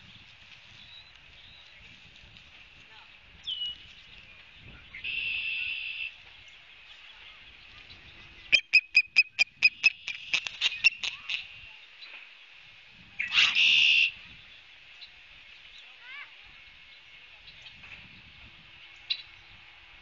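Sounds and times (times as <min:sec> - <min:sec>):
sharp high bird chirps: 0:08.5 - 0:11.4.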